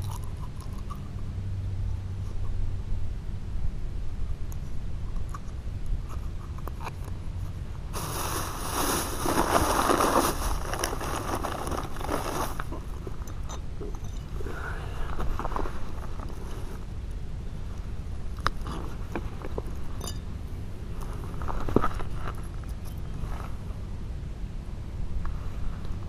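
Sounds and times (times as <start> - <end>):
plastic bag crinkling: 8.0 - 12.9.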